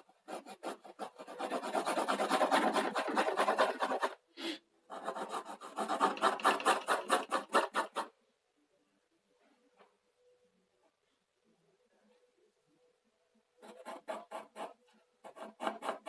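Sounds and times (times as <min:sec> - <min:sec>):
pencil shading on paper: 0:00.0 - 0:04.2, 0:04.9 - 0:08.2, 0:13.6 - 0:16.0.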